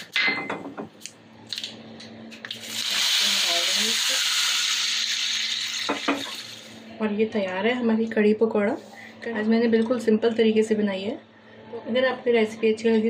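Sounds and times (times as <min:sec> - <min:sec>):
hot oil sizzling: 0:02.4 - 0:06.8.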